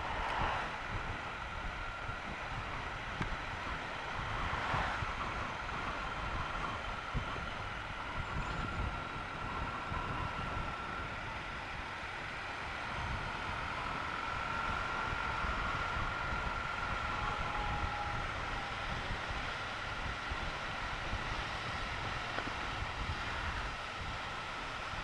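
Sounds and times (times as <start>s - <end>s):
wind buffeting microphone: 0.0s - 11.8s
faint high whine: 0.0s - 25.0s
motorcycle engine running: 0.0s - 25.0s.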